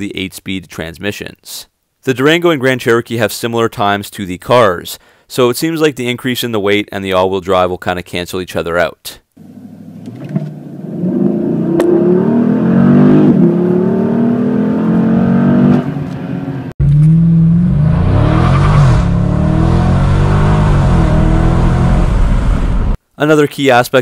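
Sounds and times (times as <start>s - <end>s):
car engine at full throttle: 9.4s - 23.0s.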